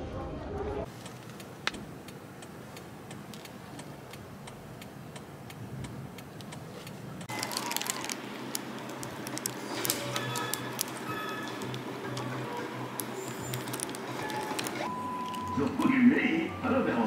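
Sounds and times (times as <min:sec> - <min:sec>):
faint regular ticking: 0:00.9 - 0:07.3.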